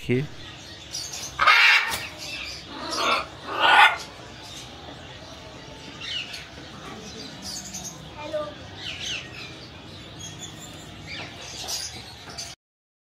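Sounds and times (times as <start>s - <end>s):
parrots squawking: 0.9s - 4.7s.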